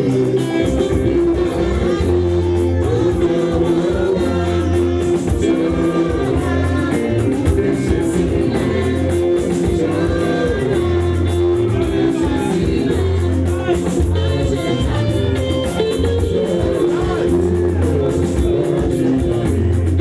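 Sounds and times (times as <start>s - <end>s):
bass line: 0.0s - 20.0s
percussion beat: 0.0s - 20.0s
church choir singing: 1.3s - 13.7s.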